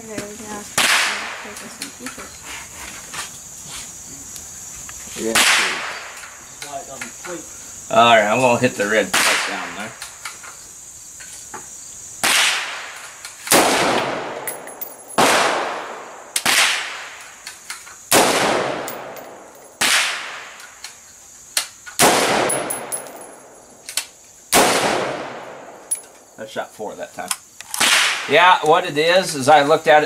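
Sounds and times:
rifle shots hitting steel plate: 0:13.5 - 0:17.0, 0:18.1 - 0:20.4, 0:22.0 - 0:23.5, 0:24.5 - 0:26.1.

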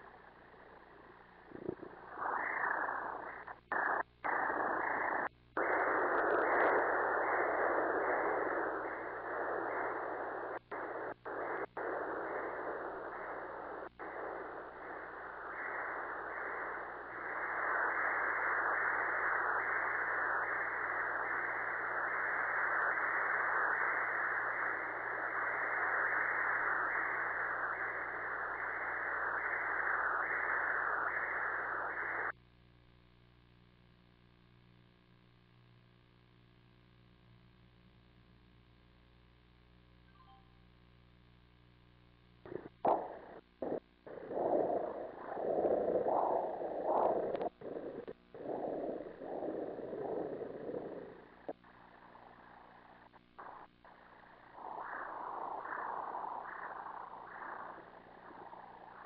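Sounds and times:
ultrasound whooshing pulse: 0:42.5 - 0:59.0.

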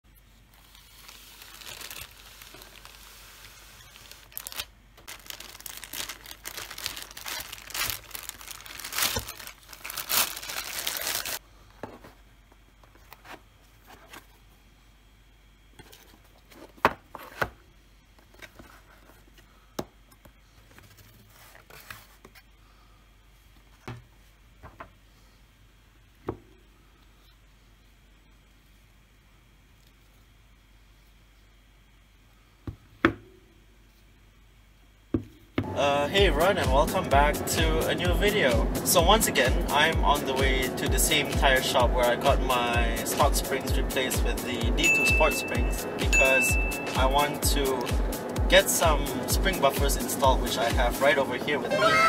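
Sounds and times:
packaging tearing and crinkling: 0:00.5 - 0:11.4.

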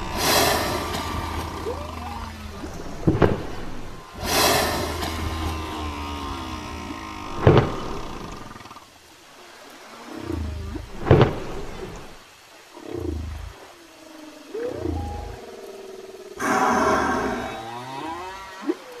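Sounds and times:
whale moans: 0:00.0 - 0:02.8, 0:12.8 - 0:19.0
sharp loud pulses: 0:00.1 - 0:01.9, 0:04.2 - 0:06.6
whale grunts: 0:16.4 - 0:18.8.

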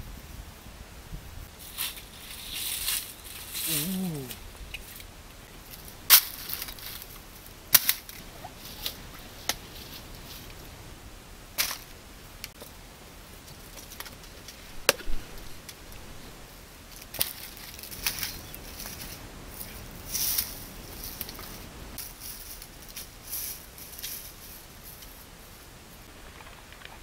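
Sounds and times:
papayas pulled on tree: 0:01.7 - 0:04.9.

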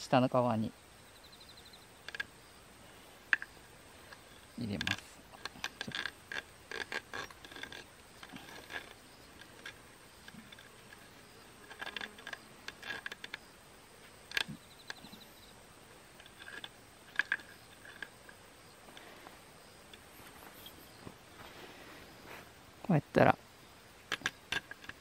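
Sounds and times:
wire cable clicking and scraping: 0:02.0 - 0:02.3, 0:04.1 - 0:13.4, 0:16.2 - 0:19.3, 0:24.1 - 0:25.0.

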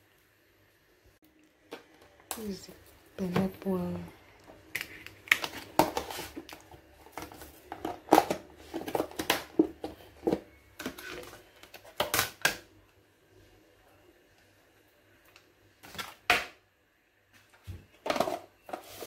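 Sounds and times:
plastic tubs clicking and knocking: 0:04.7 - 0:12.6, 0:18.0 - 0:19.0.

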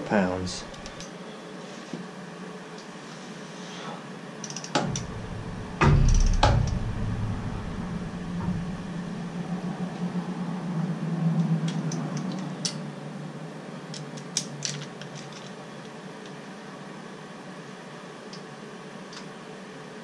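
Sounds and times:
steady low hum: 0:00.0 - 0:20.0
torque wrench clicking: 0:04.4 - 0:05.1.

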